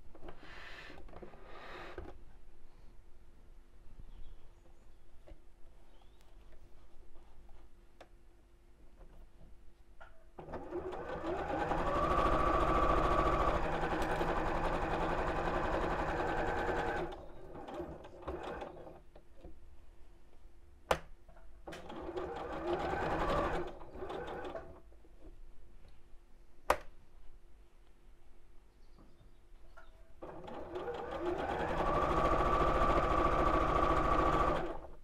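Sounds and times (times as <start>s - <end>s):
sewing machine stitching: 10.4s - 19.0s, 21.7s - 24.8s, 30.2s - 35.0s.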